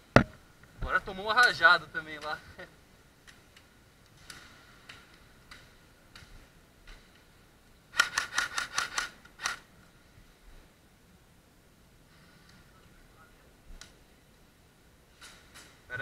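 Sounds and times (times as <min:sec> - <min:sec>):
airsoft gun rapid shots: 0:07.9 - 0:09.6.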